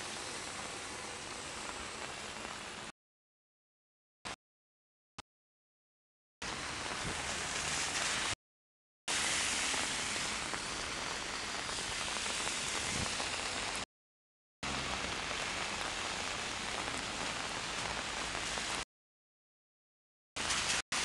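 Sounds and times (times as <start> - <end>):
heavy rain on street: 0.0 - 2.9, 6.4 - 8.4, 9.1 - 13.9, 14.6 - 18.8, 20.4 - 21.0.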